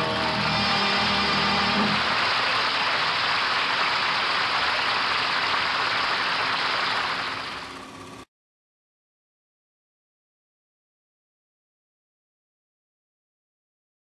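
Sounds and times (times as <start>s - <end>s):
music: 0.0s - 2.4s
steady hiss: 0.0s - 8.2s.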